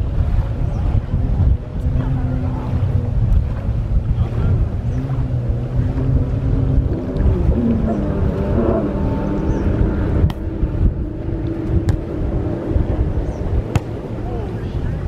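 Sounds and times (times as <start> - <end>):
wind buffeting microphone: 0.0 - 15.0
faint voices: 0.4 - 6.0, 12.1 - 15.0
volleyball being struck: 13.7 - 13.9.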